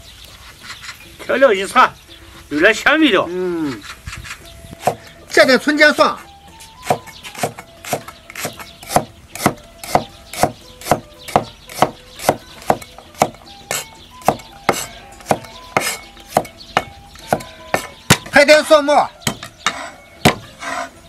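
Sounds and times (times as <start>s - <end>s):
cleaver chopping on wooden block: 4.8s - 5.1s, 6.8s - 18.4s, 19.2s - 20.8s.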